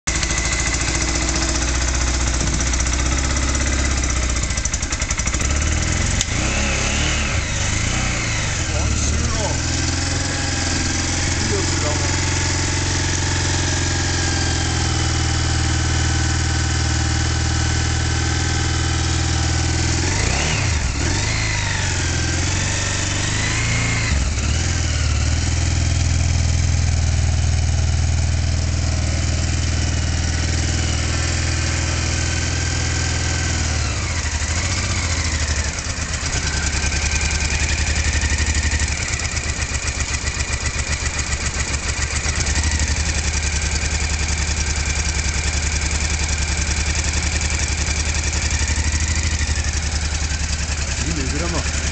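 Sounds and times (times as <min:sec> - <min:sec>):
motorcycle engine idling and revving: 0:00.0 - 0:51.9.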